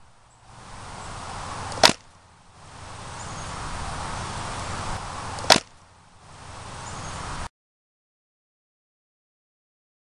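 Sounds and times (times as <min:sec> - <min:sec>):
wind and rustling: 0:00.0 - 0:07.5
sharp click: 0:01.7 - 0:02.0, 0:05.4 - 0:05.7.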